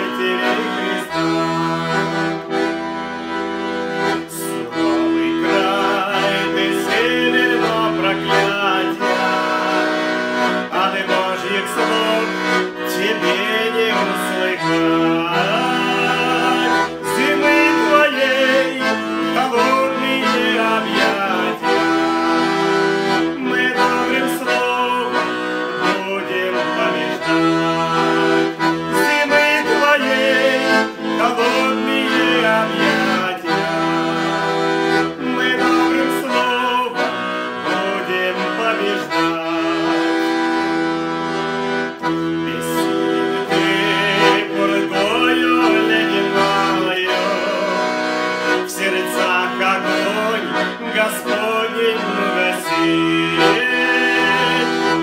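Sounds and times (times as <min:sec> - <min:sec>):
man singing: 0:00.0 - 0:02.8, 0:04.0 - 0:41.1, 0:41.9 - 0:55.0
button accordion playing chords: 0:00.0 - 0:55.0.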